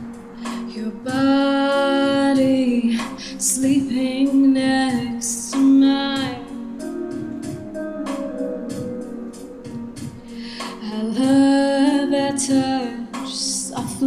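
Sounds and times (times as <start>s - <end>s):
instrumental accompaniment: 0.0s - 14.0s
woman singing: 0.6s - 6.8s, 10.5s - 14.0s.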